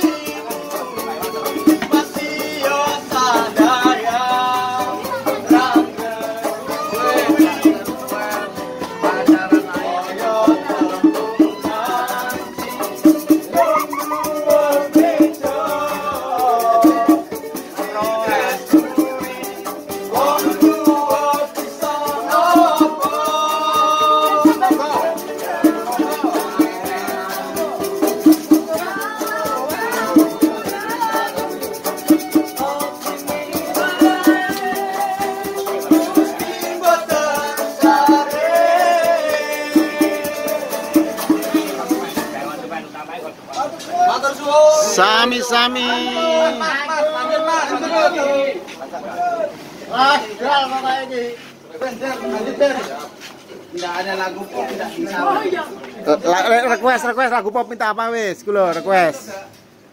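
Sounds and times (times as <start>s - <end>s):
person singing: 0.0s - 42.2s
live band playing: 0.0s - 43.8s, 44.8s - 46.8s
shaker rhythm: 0.0s - 46.6s.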